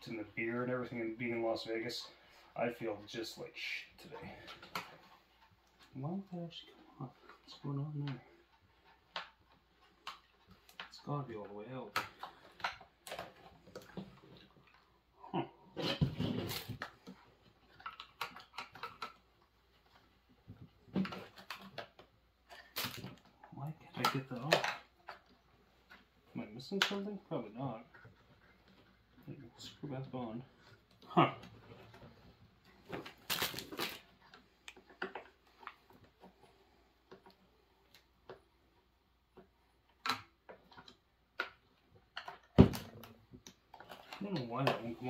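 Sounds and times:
plastic parts clicking and knocking: 0:06.6 - 0:14.9, 0:15.8 - 0:27.2, 0:30.5 - 0:45.0.

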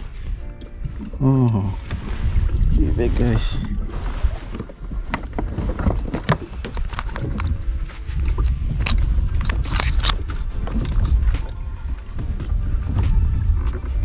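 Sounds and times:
constant low rumble: 0:00.0 - 0:14.0
fishing tackle clicks and knocks: 0:04.5 - 0:14.0.

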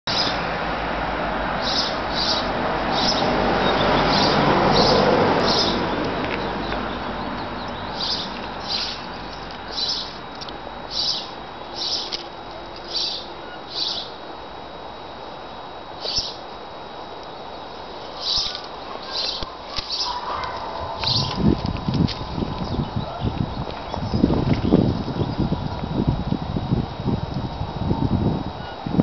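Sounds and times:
small bird chirping: 0:00.1 - 0:00.4, 0:01.6 - 0:10.2, 0:10.9 - 0:12.2, 0:12.8 - 0:14.2, 0:16.0 - 0:16.4, 0:18.0 - 0:21.8.

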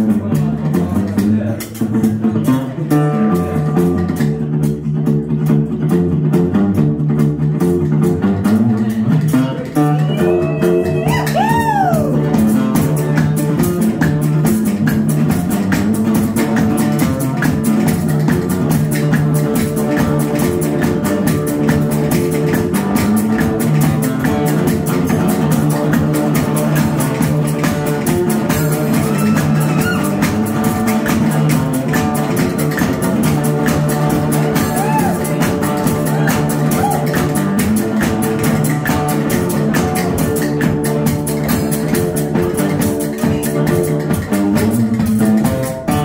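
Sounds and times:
guitars picked and strummed: 0:00.0 - 0:46.0
low bass line: 0:00.0 - 0:46.0
resonator guitar: 0:00.0 - 0:46.0
bending tone: 0:09.6 - 0:12.4, 0:27.8 - 0:31.2.

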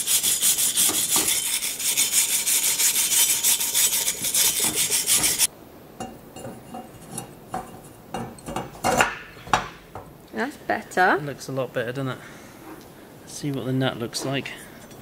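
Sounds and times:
wire brush scrubbing metal: 0:00.0 - 0:05.5.

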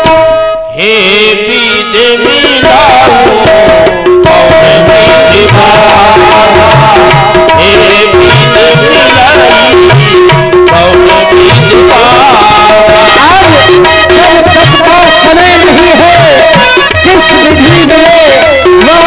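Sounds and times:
harmonium: 0:00.0 - 0:19.0
tabla rhythm: 0:00.0 - 0:19.0.

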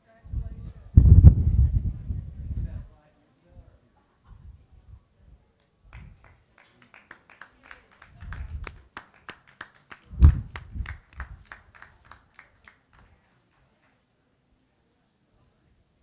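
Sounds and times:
scattered clapping: 0:05.6 - 0:14.0.

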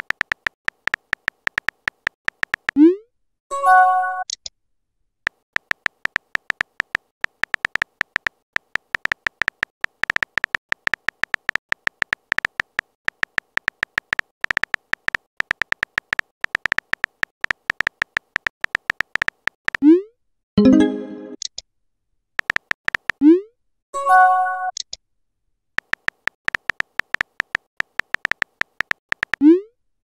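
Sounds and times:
keyboard tap clicks: 0:00.0 - 0:02.8, 0:05.3 - 0:19.8, 0:22.4 - 0:23.2, 0:25.8 - 0:29.4.

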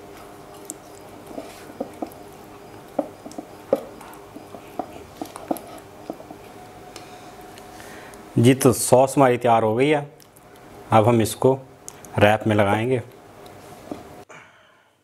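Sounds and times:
faint steady hum: 0:00.0 - 0:15.0
spatula tapping glass bowl: 0:02.9 - 0:06.3.

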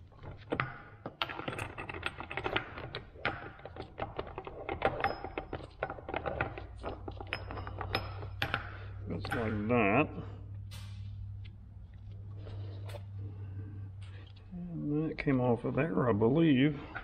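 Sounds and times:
metal gears clinking: 0:01.4 - 0:10.0.

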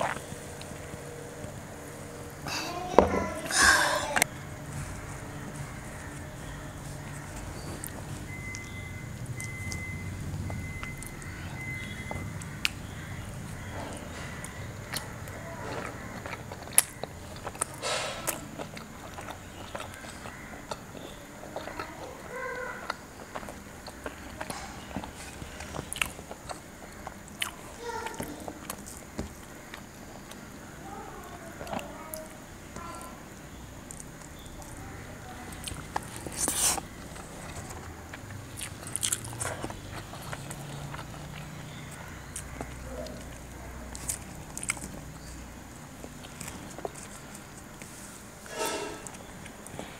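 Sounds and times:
person chewing food: 0:00.0 - 0:02.2, 0:04.9 - 0:30.6, 0:31.2 - 0:49.9
person tearing bread and chewing: 0:35.6 - 0:47.9.

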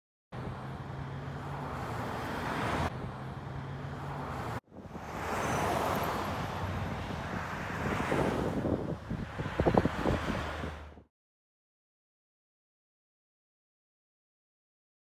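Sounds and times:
road traffic engine hum: 0:00.3 - 0:11.1
pickup truck passing: 0:00.4 - 0:11.0.

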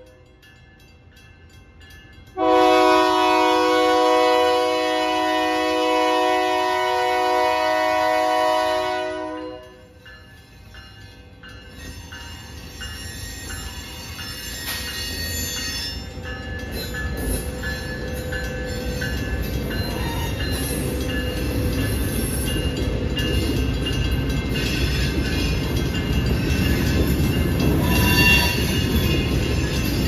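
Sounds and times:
crossing signal bell ringing: 0:00.0 - 0:30.0
freight train rumbling over rails: 0:00.0 - 0:30.0
train wheel squeal: 0:10.0 - 0:30.0.

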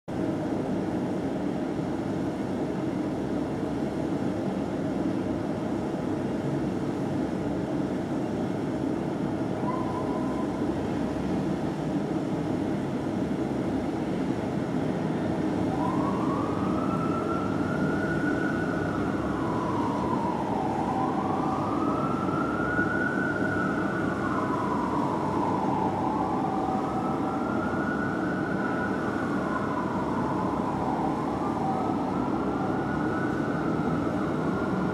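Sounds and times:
fire truck siren wailing: 0:09.5 - 0:11.6, 0:15.1 - 0:34.9
short siren tone: 0:09.6 - 0:10.8.

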